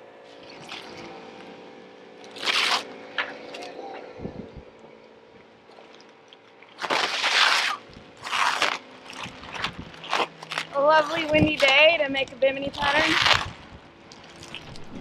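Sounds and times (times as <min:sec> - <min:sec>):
plastic sheet crinkling and rustling: 0:02.3 - 0:02.9, 0:06.7 - 0:15.0.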